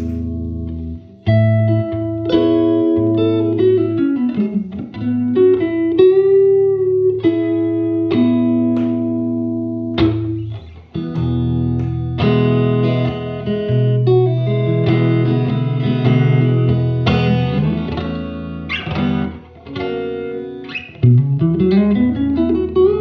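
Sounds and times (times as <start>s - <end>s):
clean electric guitar notes: 0.0s - 23.0s
electric guitar chords ringing: 0.0s - 23.0s.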